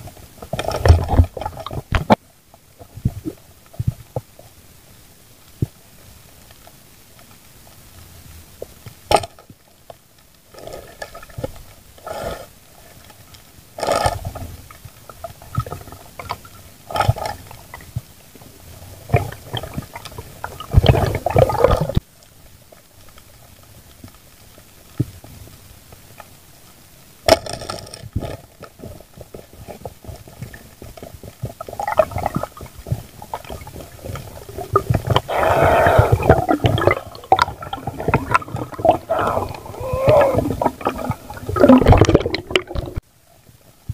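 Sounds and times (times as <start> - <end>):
water sloshing and bubbling: 0.0 - 43.9
diver breathing underwater: 35.2 - 36.6, 38.8 - 41.3.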